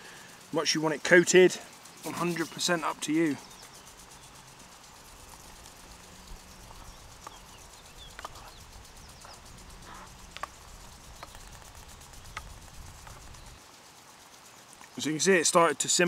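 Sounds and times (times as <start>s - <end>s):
low steady rumble: 2.6s - 13.6s.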